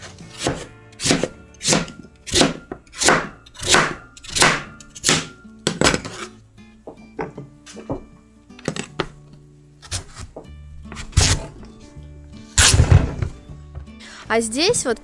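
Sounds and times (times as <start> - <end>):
knife cutting on cutting board: 0.0 - 5.3, 9.8 - 10.3, 10.9 - 11.6
background music: 0.0 - 15.0.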